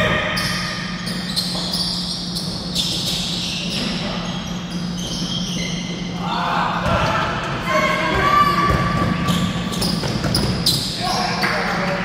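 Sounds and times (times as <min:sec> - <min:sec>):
sneaker squeaks: 0:00.0 - 0:11.8
steady low hum: 0:00.0 - 0:12.0
basketball bouncing: 0:08.1 - 0:10.8.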